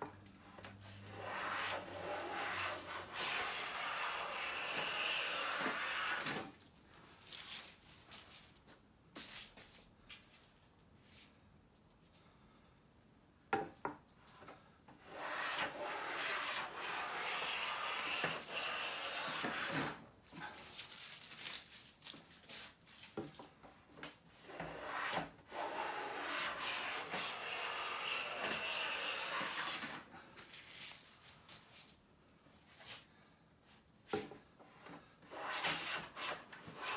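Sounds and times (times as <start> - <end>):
hand plane cutting wood: 0.6 - 6.4, 15.0 - 20.0, 24.4 - 30.0, 35.2 - 36.9.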